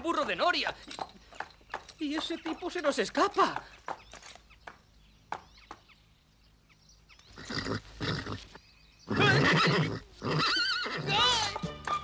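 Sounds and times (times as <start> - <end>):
breathy horse snorts: 7.4 - 8.5
cartoon horse whinny: 9.1 - 11.2.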